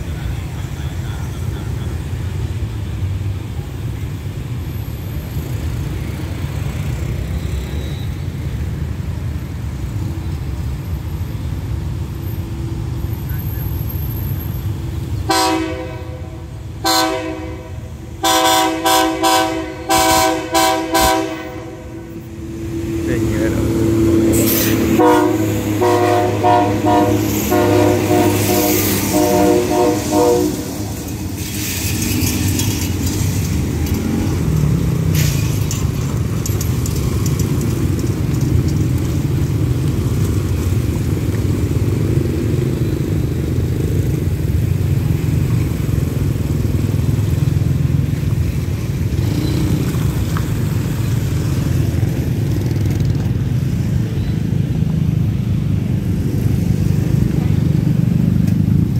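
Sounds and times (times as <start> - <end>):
low rumble of passing train: 0.0 - 58.9
motorbike engines: 0.0 - 58.9
train horn short blasts: 15.3 - 22.2, 24.1 - 31.1.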